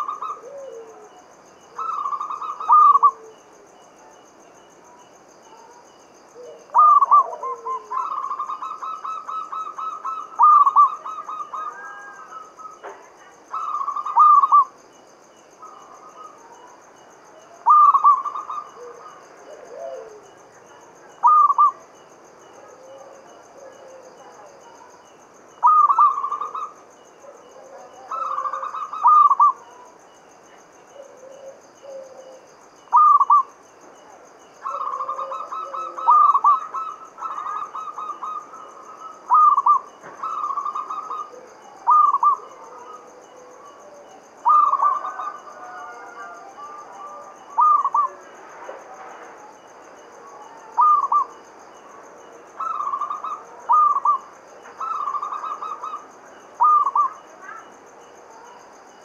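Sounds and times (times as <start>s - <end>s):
dove cooing: 0.0s - 3.5s, 6.3s - 14.8s, 17.6s - 21.8s, 22.6s - 24.8s, 25.6s - 29.9s, 30.9s - 48.3s, 50.2s - 51.4s, 52.6s - 57.7s.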